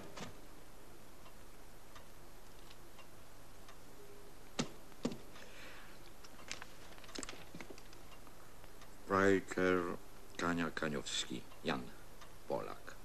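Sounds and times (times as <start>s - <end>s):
soft rustle: 5.2s - 8.8s.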